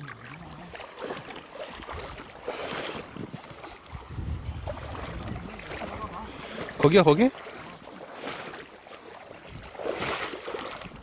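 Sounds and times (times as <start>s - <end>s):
water splashing around legs: 0.0s - 11.0s
wind rumbling on microphone: 2.9s - 6.8s, 9.4s - 11.0s.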